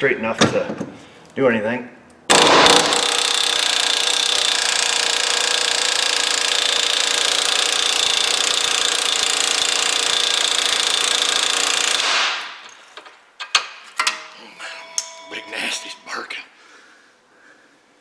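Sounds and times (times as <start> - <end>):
pneumatic air hammer hammering: 2.3 - 12.7.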